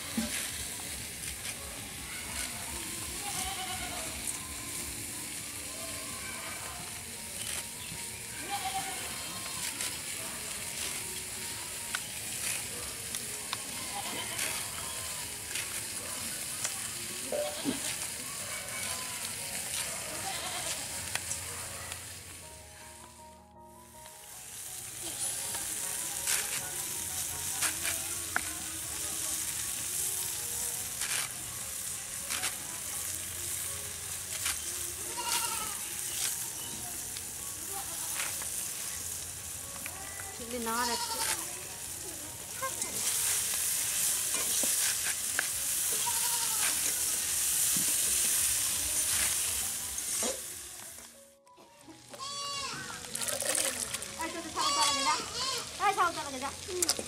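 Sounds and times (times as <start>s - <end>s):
leaves rustling: 0.0s - 23.2s, 23.8s - 51.2s, 52.0s - 57.0s
steady hiss: 24.0s - 50.8s.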